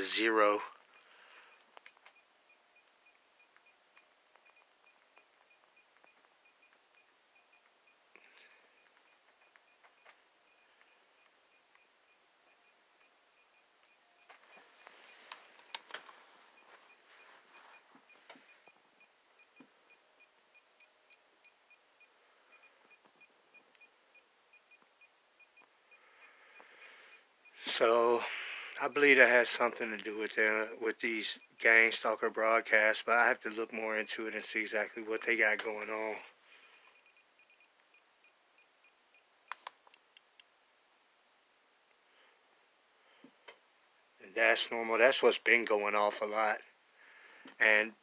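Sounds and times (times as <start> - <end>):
rustling and clicks: 14.2 - 18.6.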